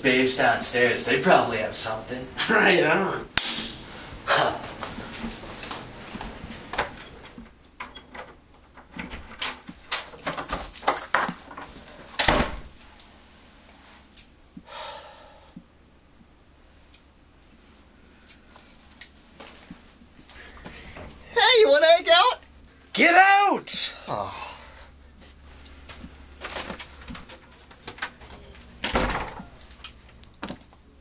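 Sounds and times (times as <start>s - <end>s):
wooden door opening and shutting: 6.7s - 12.8s, 28.8s - 29.6s
keys jangling: 9.4s - 11.5s.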